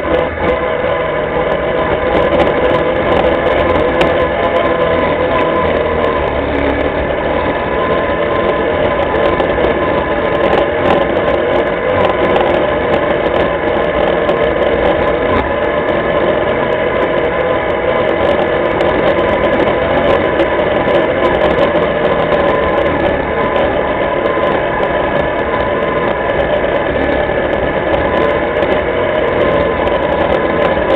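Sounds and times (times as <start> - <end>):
quad bike engine running: 0.0 - 30.9.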